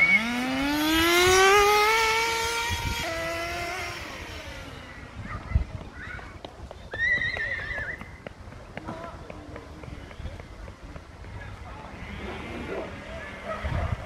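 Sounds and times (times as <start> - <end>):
toy car motor whining: 0.0 - 5.2.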